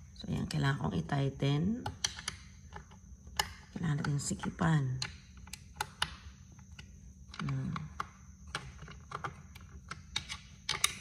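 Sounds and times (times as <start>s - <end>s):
small clicks tightening bolts: 1.8s - 11.0s.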